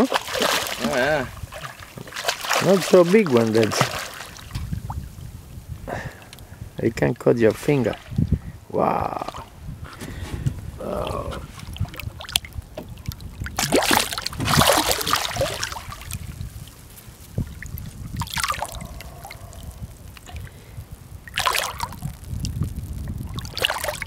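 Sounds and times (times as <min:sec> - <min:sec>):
fish thrashing and splashing water: 0:00.0 - 0:05.1, 0:11.0 - 0:22.4, 0:23.2 - 0:24.0.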